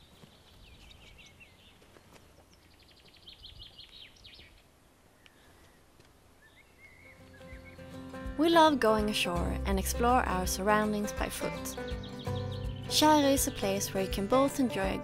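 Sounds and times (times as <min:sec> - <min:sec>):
faint birdsong chirps and trills: 0:00.0 - 0:08.2, 0:11.5 - 0:14.2.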